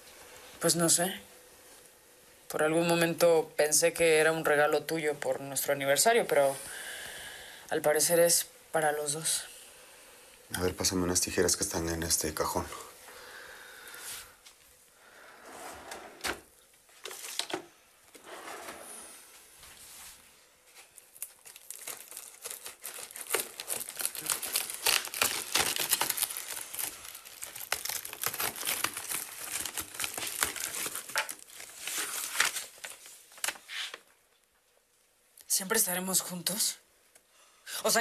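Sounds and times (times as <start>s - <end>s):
paper rustling: 20.8s - 34.1s
packing tape tearing: 21.0s - 34.0s
scissors cutting packing tape: 21.8s - 31.4s.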